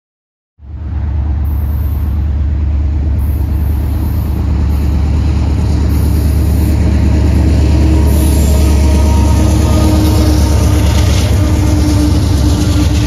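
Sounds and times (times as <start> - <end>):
diesel locomotives rumbling: 0.6 - 13.0
passing highway traffic: 0.6 - 13.0.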